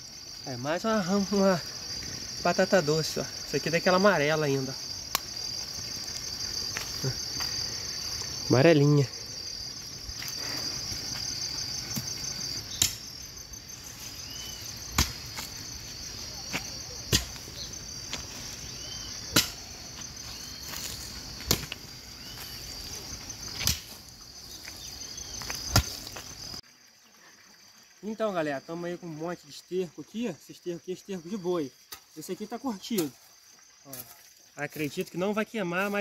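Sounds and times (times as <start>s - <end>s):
crickets chirring: 0.0s - 36.0s
hoe chopping into soil: 12.7s - 13.1s, 14.9s - 15.5s, 16.5s - 17.5s, 19.3s - 19.7s, 20.8s - 21.8s, 23.6s - 24.0s, 25.4s - 26.1s.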